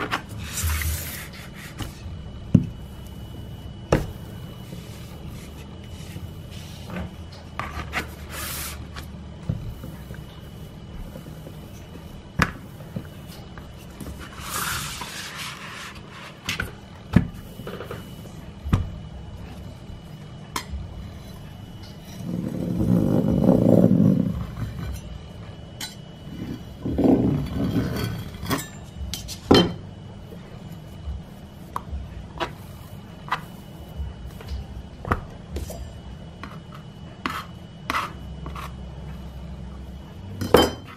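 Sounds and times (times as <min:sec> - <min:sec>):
rolling pin dull rumble: 0:20.8 - 0:25.2, 0:26.3 - 0:28.5
knife cutting dough: 0:36.4 - 0:38.8.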